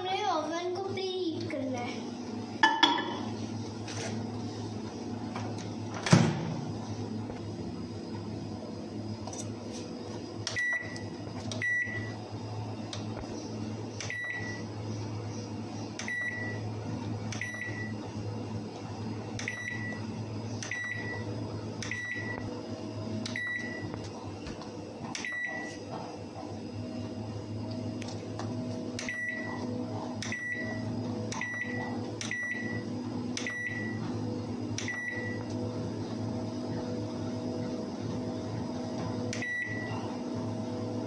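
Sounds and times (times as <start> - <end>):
steady low hum: 0.0 - 41.0
microwave keypad beeps: 10.5 - 12.2, 14.0 - 14.7, 16.0 - 16.7, 17.3 - 18.0, 19.4 - 22.5, 23.3 - 24.0, 25.1 - 25.8, 29.0 - 29.6, 30.2 - 34.0, 34.8 - 35.5, 39.3 - 40.1.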